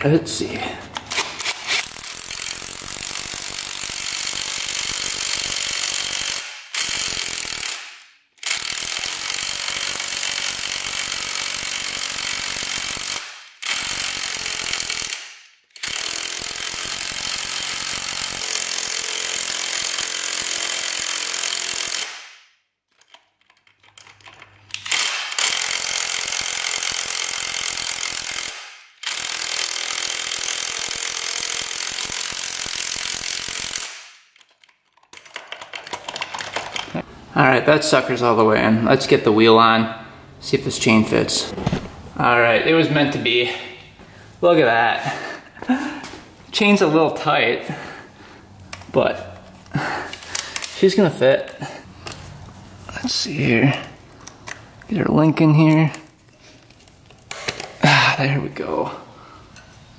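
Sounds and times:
power tool driving a bolt: 1.0s - 22.4s, 23.0s - 37.0s, 48.6s - 50.8s.

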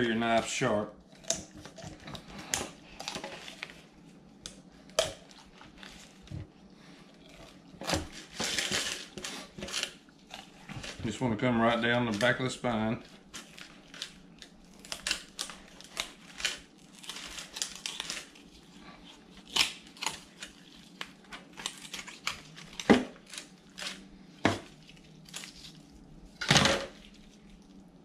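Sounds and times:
foil pan crinkling: 7.4s - 18.6s, 19.2s - 27.8s
chicken bones crunching: 13.0s - 27.9s.

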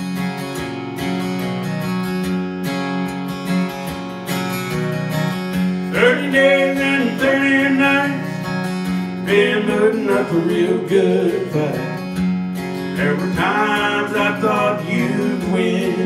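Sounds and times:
acoustic guitar strumming: 0.0s - 16.0s
man singing: 5.9s - 8.4s, 9.2s - 12.0s, 13.0s - 16.0s.

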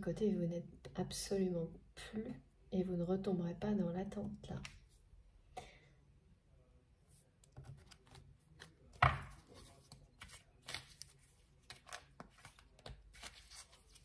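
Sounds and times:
thump on table: 9.0s - 9.4s.

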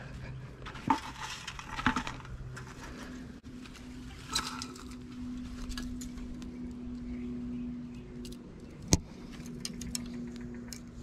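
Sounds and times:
leaves rustling: 0.8s - 6.6s.

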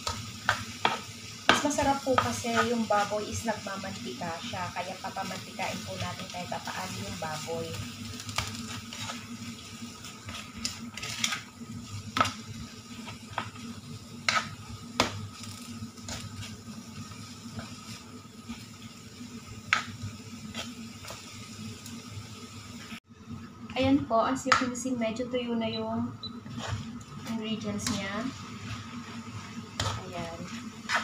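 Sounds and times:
oil sizzling: 0.0s - 31.0s
steady low hum: 0.0s - 31.0s
spatula scraping a wok: 5.1s - 19.0s, 19.7s - 21.4s, 26.4s - 31.0s.

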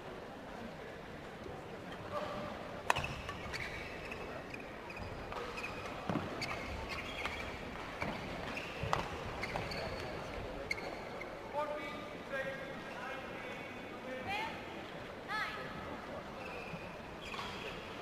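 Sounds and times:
shoes squeaking on court: 2.2s - 11.4s, 16.4s - 17.9s.

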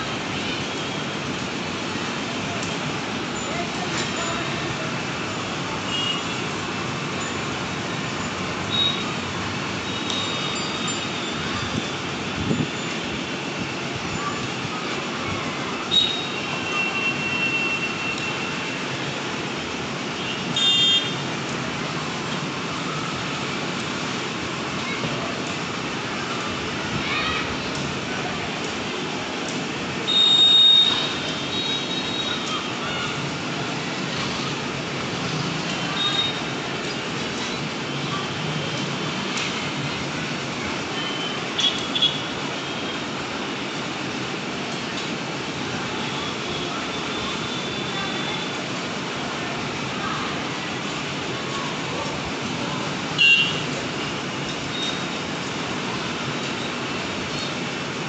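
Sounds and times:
outdoor background noise: 0.0s - 58.0s
street background noise: 0.0s - 58.0s
distant children shouting: 26.2s - 27.8s, 30.8s - 34.7s.

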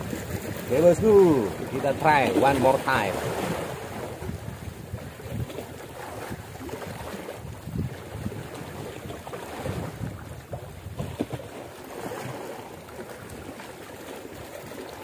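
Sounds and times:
wind buffeting microphone: 0.0s - 12.5s
waves washing against rocks: 0.0s - 15.0s.

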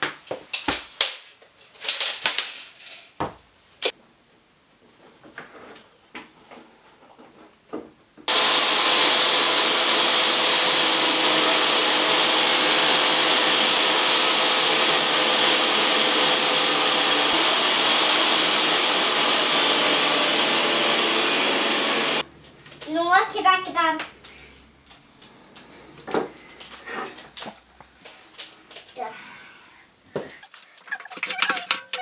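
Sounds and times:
table saw ripping wood: 8.3s - 22.2s.

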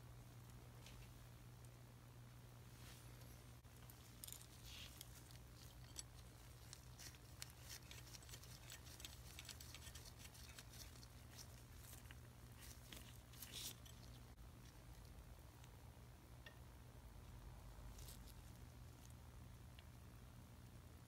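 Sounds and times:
low steady hum: 0.0s - 21.0s
faint clicks and rustles: 2.7s - 15.8s.

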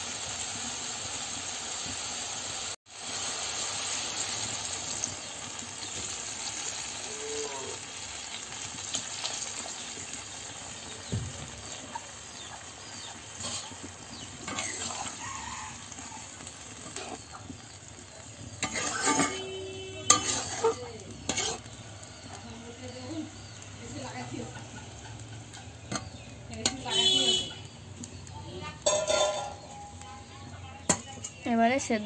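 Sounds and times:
curry bubbling and hissing: 2.2s - 25.0s
metal spatula scraping a pan: 12.4s - 22.3s, 28.8s - 31.5s.

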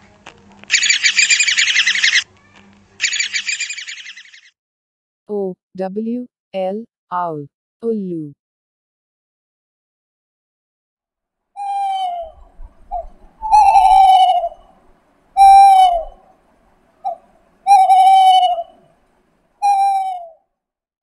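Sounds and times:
owl calling: 0.7s - 2.3s, 3.0s - 4.5s, 11.6s - 14.8s, 15.4s - 16.3s, 17.0s - 18.9s, 19.6s - 20.4s.

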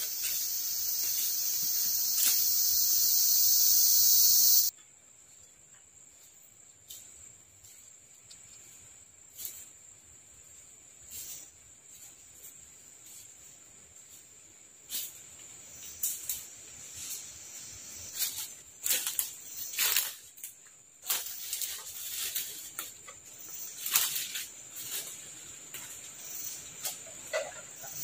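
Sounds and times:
brushing past undergrowth: 0.0s - 3.1s, 11.0s - 27.6s
high-pitched insect drone: 0.0s - 4.7s.

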